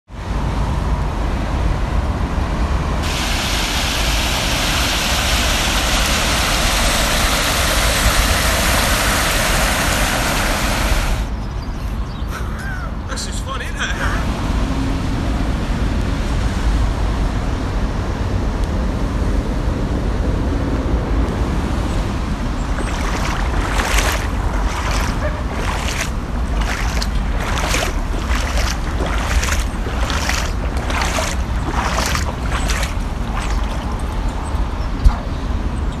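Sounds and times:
wind buffeting microphone: 0:18.8 - 0:36.0.

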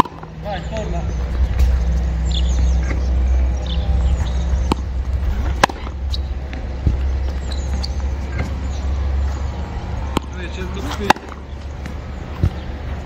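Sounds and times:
steady low rumble: 0:00.0 - 0:13.0
tennis ball knocks: 0:04.6 - 0:08.6, 0:10.1 - 0:12.6.

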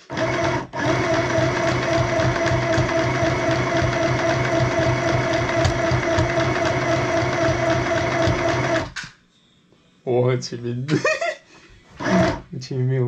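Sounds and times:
electric sewing machine running: 0:00.0 - 0:09.0, 0:12.0 - 0:12.4.

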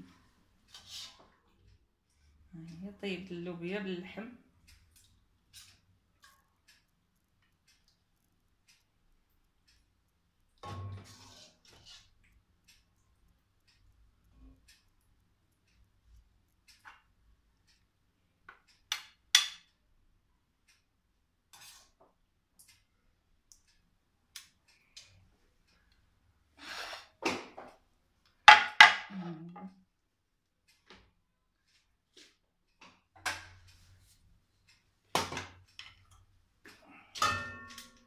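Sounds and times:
metal spoon scraping plate and pot: 0:10.7 - 0:12.1.

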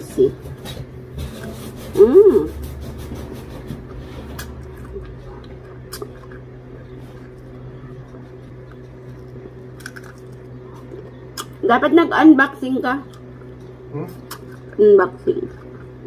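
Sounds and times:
steady low hum: 0:00.0 - 0:16.0
person chewing and sucking shrimp: 0:04.3 - 0:11.6, 0:13.1 - 0:14.8.

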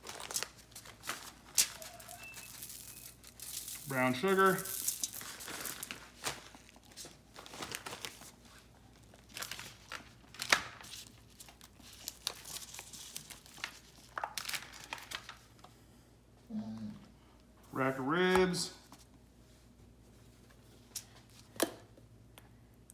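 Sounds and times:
plastic bag crinkling: 0:00.0 - 0:15.5
aluminium foil rustling: 0:00.0 - 0:15.6.

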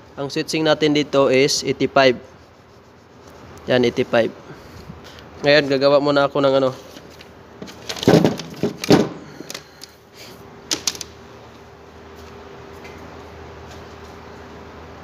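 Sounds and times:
faint steady hum: 0:00.0 - 0:08.0.

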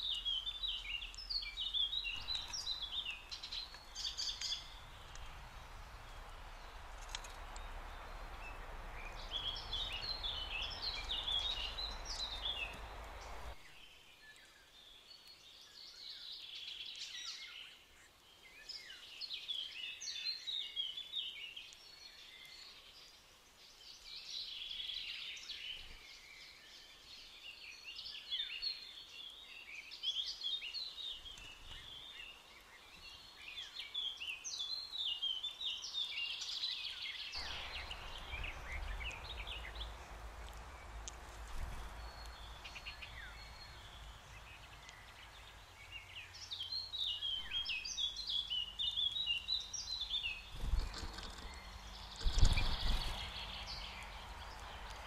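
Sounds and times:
songbirds chirping and trilling: 0:00.0 - 0:55.0
low rushing noise: 0:02.1 - 0:13.6, 0:37.4 - 0:46.4.

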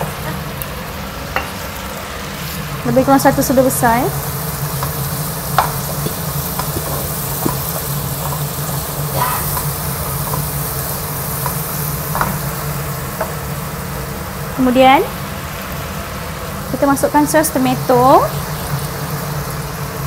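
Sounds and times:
vegetables sizzling in a pan: 0:00.0 - 0:20.0
spatula scraping and tapping pan: 0:04.7 - 0:08.5.

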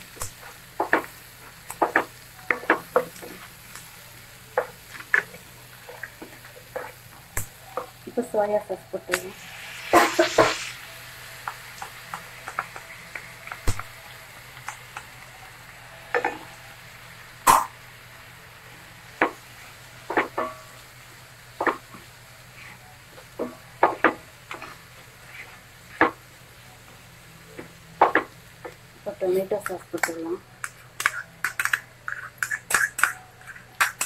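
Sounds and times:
sauce hissing in hot pan: 0:00.0 - 0:22.8
vegetables sizzling in a pan: 0:00.0 - 0:34.0.

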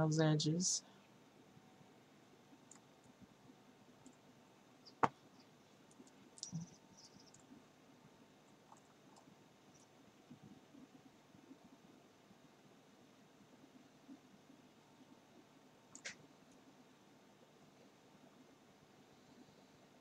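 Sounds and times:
computer mouse clicking: 0:02.7 - 0:03.2, 0:05.9 - 0:07.5, 0:08.5 - 0:09.9, 0:15.9 - 0:16.6.

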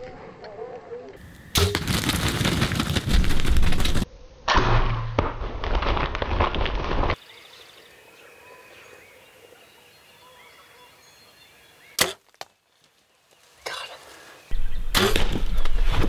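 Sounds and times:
turkey wings beating: 0:01.6 - 0:04.1
faint songbird calls: 0:07.2 - 0:15.9
bow shot crack: 0:12.0 - 0:12.3, 0:14.6 - 0:16.0.

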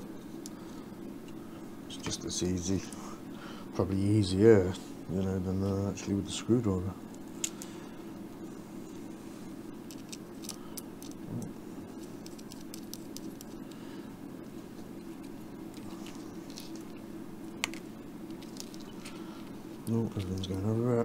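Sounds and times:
extractor fan humming: 0:00.0 - 0:21.0
small parts clicking and tapping: 0:09.9 - 0:11.2, 0:17.6 - 0:20.6.

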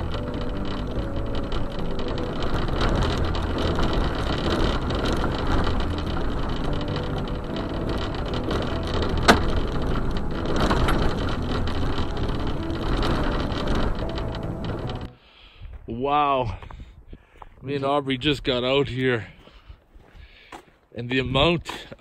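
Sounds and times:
tyres rolling over gravel: 0:00.0 - 0:16.7.

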